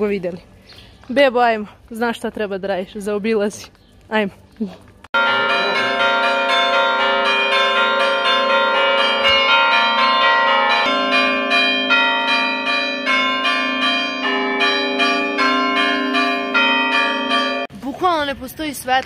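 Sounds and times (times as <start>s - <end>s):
church bells ringing: 5.2s - 17.7s.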